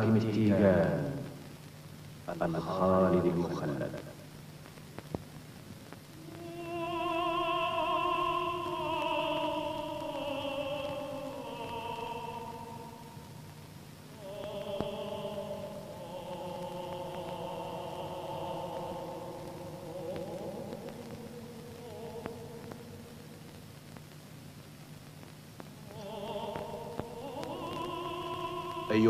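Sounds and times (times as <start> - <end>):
voice singing long notes: 6.1 - 24.0, 25.6 - 29.0.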